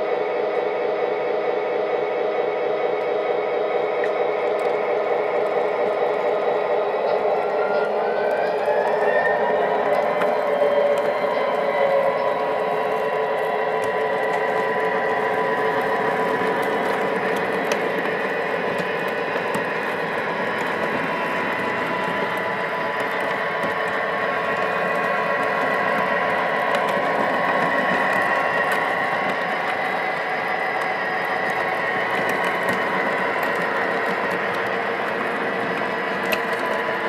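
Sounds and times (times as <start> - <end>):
steady whine: 0.0 - 37.0
model train wheels clattering on rails: 9.7 - 37.0.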